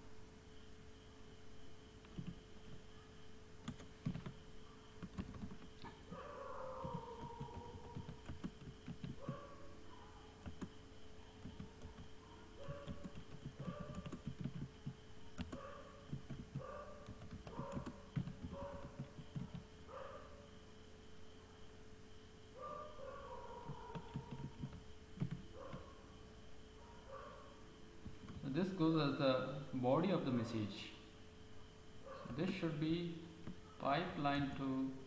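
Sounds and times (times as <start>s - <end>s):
faint steady hum: 0.0s - 35.0s
keyboard typing clicks: 2.0s - 2.8s, 3.6s - 4.4s, 5.0s - 6.0s, 6.8s - 9.5s, 10.4s - 10.8s, 11.4s - 19.7s, 23.7s - 25.9s.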